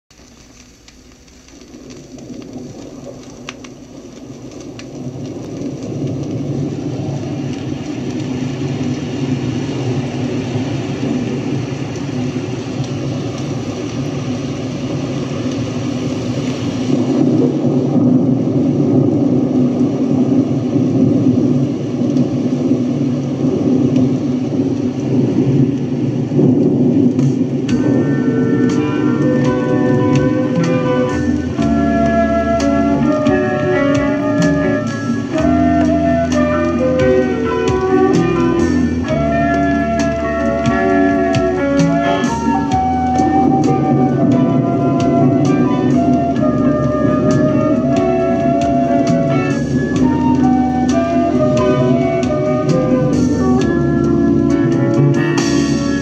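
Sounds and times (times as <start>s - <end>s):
vinyl record surface noise: 0.0s - 56.0s
faint vinyl clicks: 0.1s - 6.4s.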